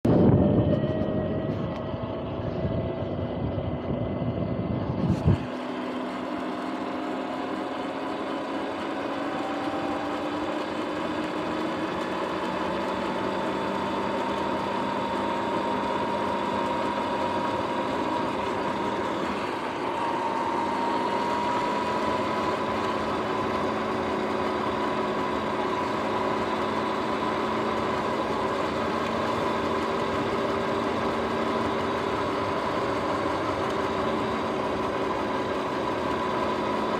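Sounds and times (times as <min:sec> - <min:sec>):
electric motor whining: 0:00.0 - 0:36.9
camera handling rumble: 0:04.9 - 0:05.5.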